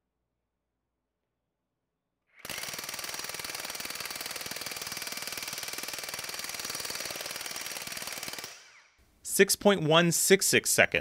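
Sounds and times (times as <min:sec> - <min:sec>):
impact wrench hammering: 0:02.4 - 0:08.8.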